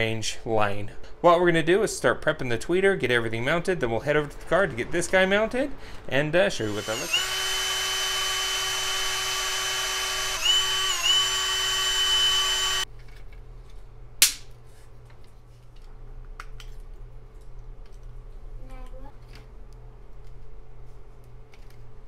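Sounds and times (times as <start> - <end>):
power drill drilling into plastic: 6.6 - 12.8.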